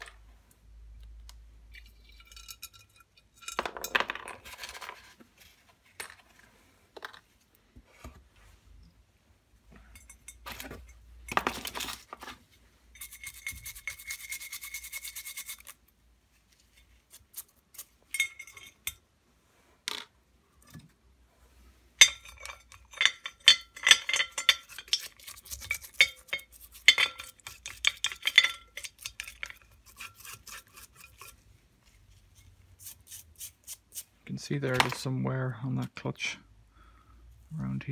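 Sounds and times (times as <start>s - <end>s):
metal parts clinking against glass: 1.8s - 4.0s, 18.1s - 19.0s, 22.0s - 29.6s
stiff brush scrubbing metal parts: 22.0s - 34.2s.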